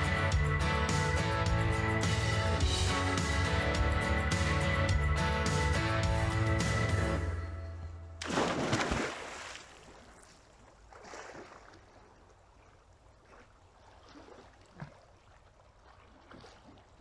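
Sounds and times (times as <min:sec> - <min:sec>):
person diving into water: 0:08.2 - 0:17.0
swimming splashes and sloshing: 0:08.2 - 0:17.0.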